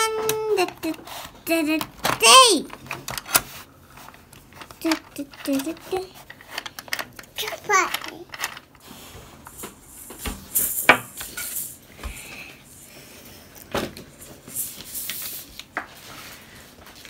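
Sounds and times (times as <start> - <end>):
plastic toy pieces clicking: 4.6 - 8.6.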